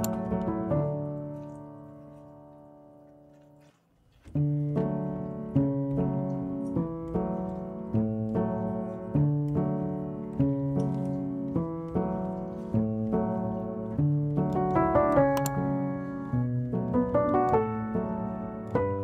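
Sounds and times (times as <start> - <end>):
gentle piano music: 0.0 - 19.0.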